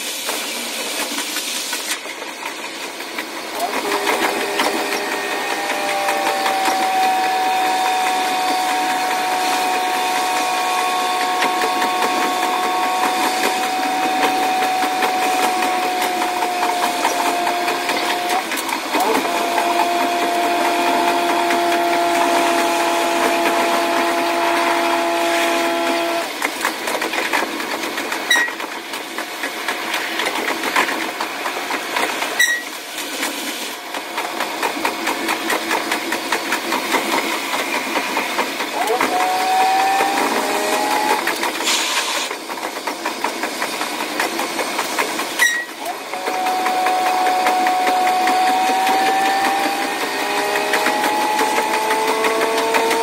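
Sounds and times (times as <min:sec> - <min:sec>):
high steady engine drone: 0:03.4 - 0:26.5, 0:37.4 - 0:42.4, 0:44.0 - 0:53.0.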